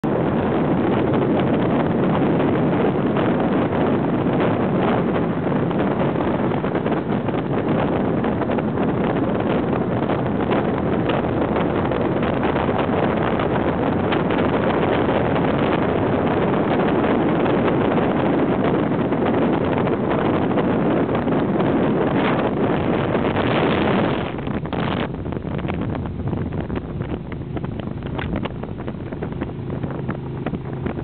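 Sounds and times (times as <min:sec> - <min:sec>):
wind rush on microphone: 0:00.0 - 0:31.0
motorcycle engine running: 0:22.1 - 0:31.0.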